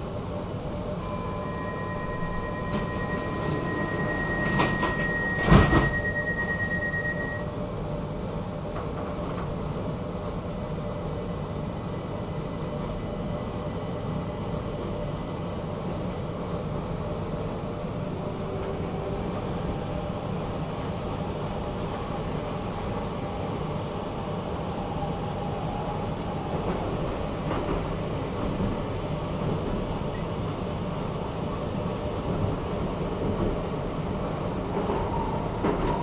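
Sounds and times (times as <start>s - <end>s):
metro train rumble: 0.0s - 36.0s
high steady tone: 0.9s - 7.5s.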